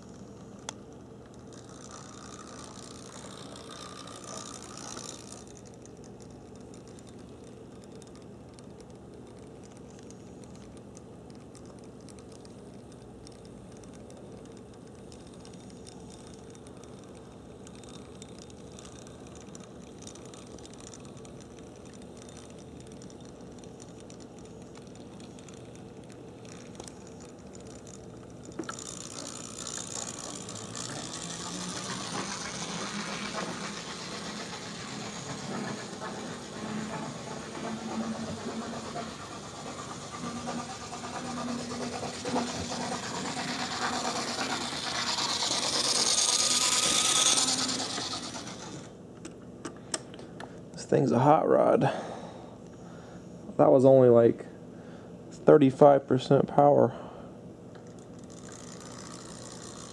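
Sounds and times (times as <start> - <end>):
model train motor whirring: 0.0 - 49.0, 57.7 - 59.9
model train wheels on rails: 0.0 - 50.1, 57.7 - 59.9.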